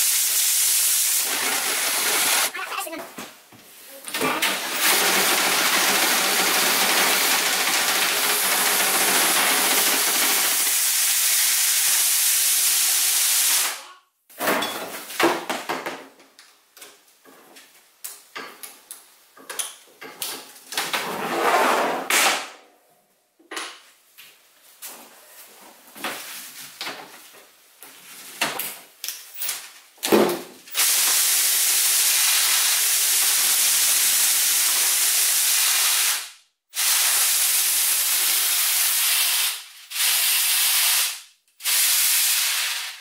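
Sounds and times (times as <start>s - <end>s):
drill spinning brush in stovepipe: 0.6s - 2.5s, 4.6s - 11.0s.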